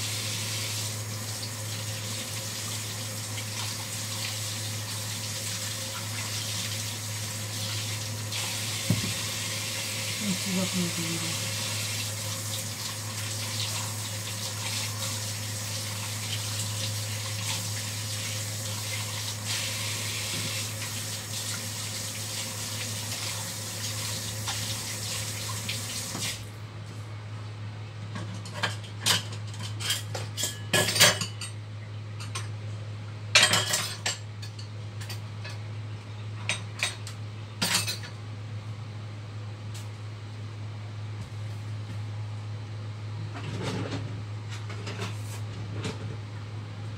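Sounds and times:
tap water running into sink: 0.0s - 10.4s, 11.0s - 26.4s.

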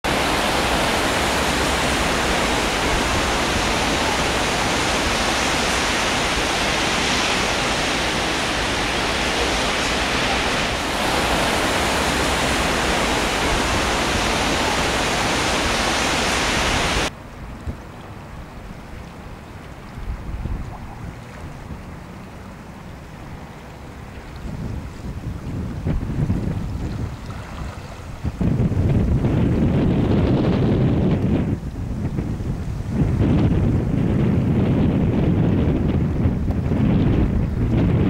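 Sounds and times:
heavy rain hiss: 0.1s - 17.5s.

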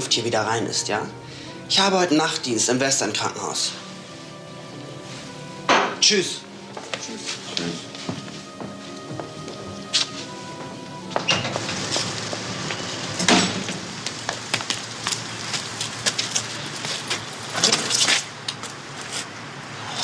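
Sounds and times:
steady outdoor noise: 6.5s - 20.0s
footsteps on paving: 6.7s - 12.8s, 14.0s - 19.3s.

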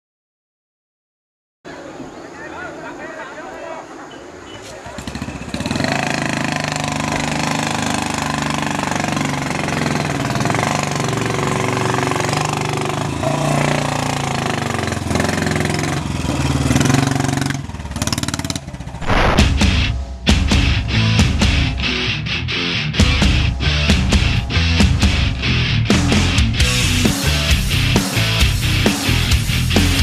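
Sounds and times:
motorcycle engine under load: 4.6s - 19.4s.

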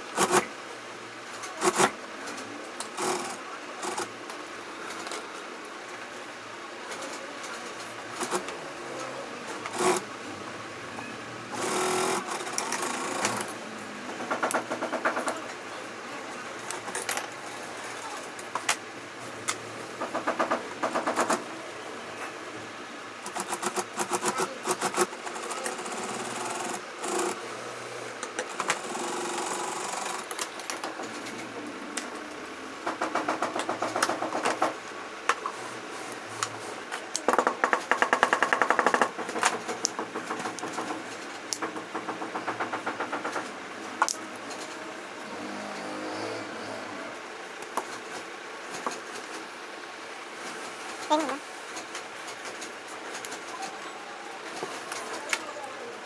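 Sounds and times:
sewing machine stitching leather: 11.6s - 13.6s.

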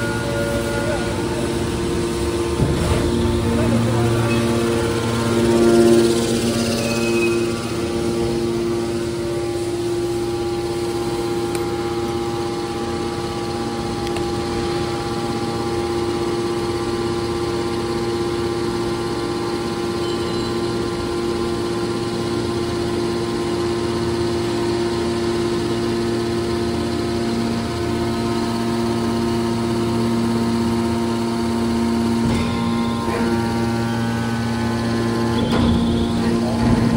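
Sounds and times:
electric motor humming: 0.0s - 15.1s.

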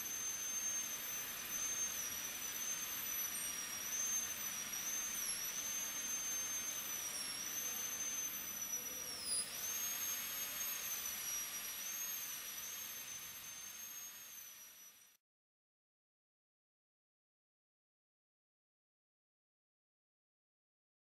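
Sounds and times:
dental drill high whine: 0.0s - 15.2s.

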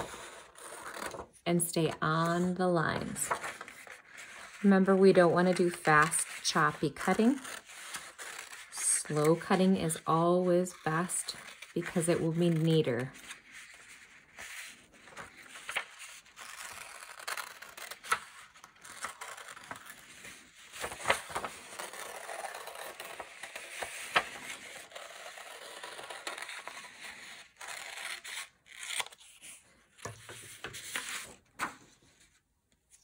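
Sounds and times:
paper rustling: 0.0s - 1.3s, 2.1s - 33.0s
scissors cutting paper: 5.4s - 13.0s, 14.4s - 20.1s, 21.0s - 29.4s.

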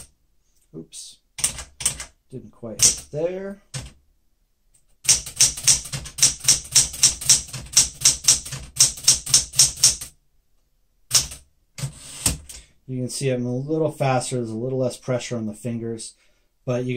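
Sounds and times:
manual typewriter key strikes: 2.8s - 3.1s, 5.0s - 10.1s, 11.1s - 11.4s.

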